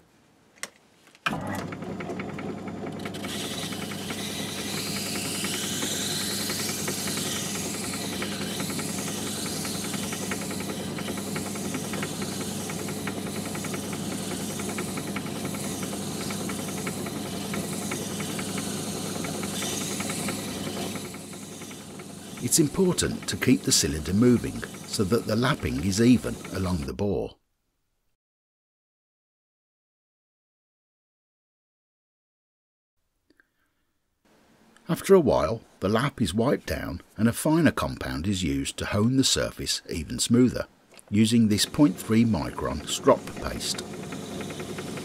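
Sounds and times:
lathe motor hum: 1.3s - 26.9s, 41.4s - 45.0s
grinding hiss: 3.2s - 26.9s, 41.3s - 45.0s.

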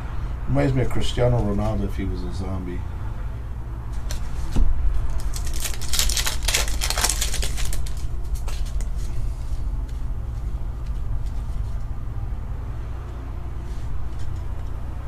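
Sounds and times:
low hum: 0.0s - 15.0s
cards flipping clicks: 5.1s - 8.9s.

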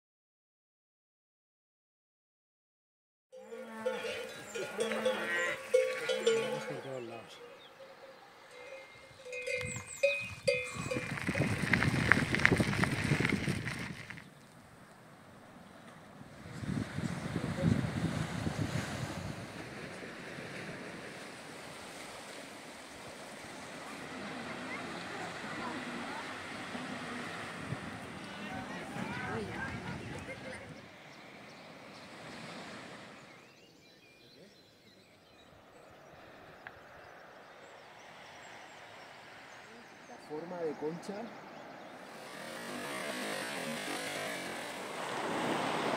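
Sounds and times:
livestock bells clanking: 3.4s - 11.6s
rough rumbling noise: 9.6s - 14.3s.

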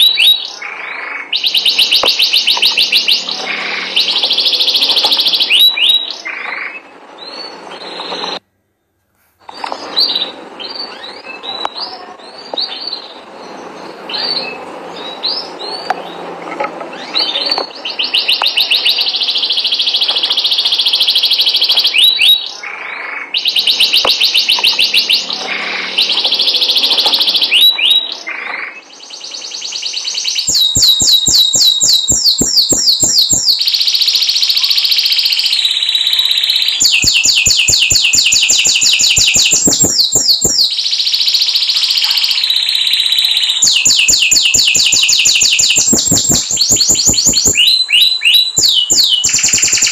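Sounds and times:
canary singing: 0.0s - 8.4s, 9.4s - 49.9s.

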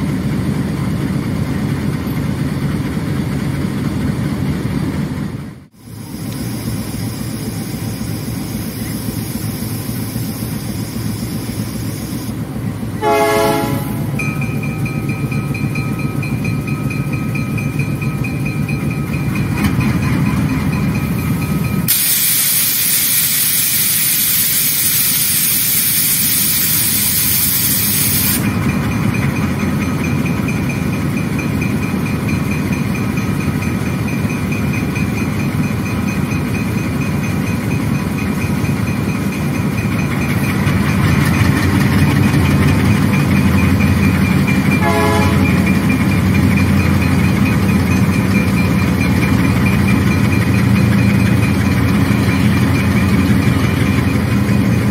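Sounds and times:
diesel locomotive engines under load: 0.0s - 54.9s
loud hiss of escaping air: 5.8s - 12.4s, 21.9s - 28.4s.

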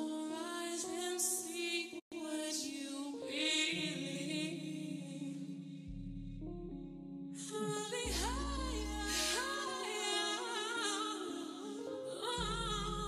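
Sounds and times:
song with singing voice: 0.0s - 5.9s, 7.4s - 13.0s.

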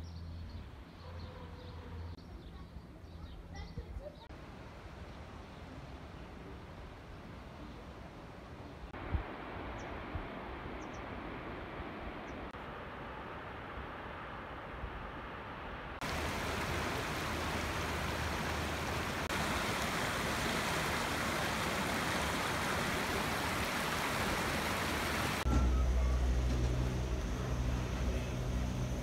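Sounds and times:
mountain stream rushing: 15.3s - 29.0s
lift station machinery hum: 25.4s - 29.0s.

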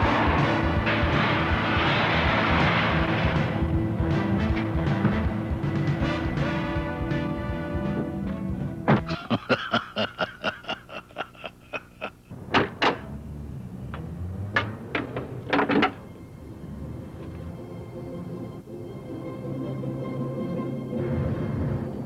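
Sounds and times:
loud knocks and thunks: 0.0s - 6.0s.

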